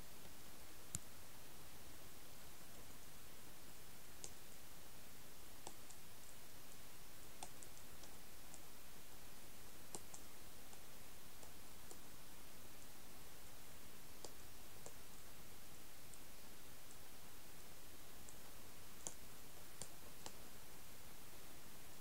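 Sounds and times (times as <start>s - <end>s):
steady background hiss: 0.0s - 22.0s
faint sharp clicks: 0.2s - 1.1s, 4.2s - 4.4s, 5.6s - 6.0s, 7.4s - 8.7s, 9.9s - 12.1s, 14.2s - 15.2s, 18.2s - 20.5s.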